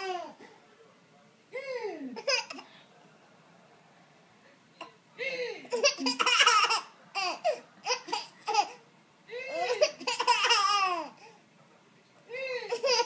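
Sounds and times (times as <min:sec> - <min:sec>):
baby laughing: 0:00.0 - 0:00.4, 0:02.2 - 0:02.6, 0:05.7 - 0:08.8, 0:09.5 - 0:11.2, 0:12.6 - 0:13.0.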